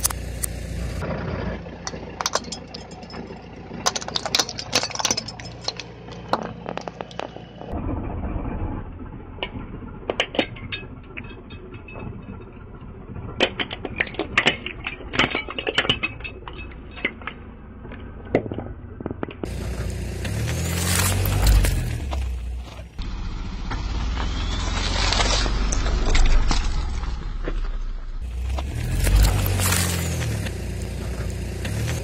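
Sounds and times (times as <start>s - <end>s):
car engine rumble: 0.0s - 32.0s
plastic cracking under tyre: 3.9s - 7.7s.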